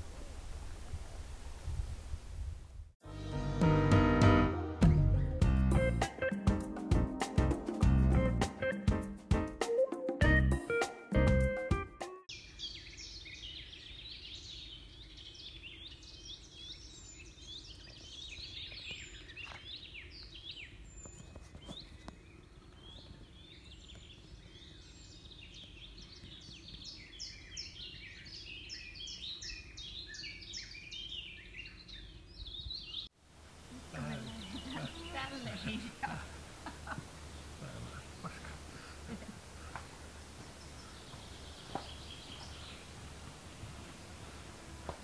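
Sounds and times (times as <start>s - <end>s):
birds chirping and trilling: 12.3s - 33.1s, 33.8s - 45.0s.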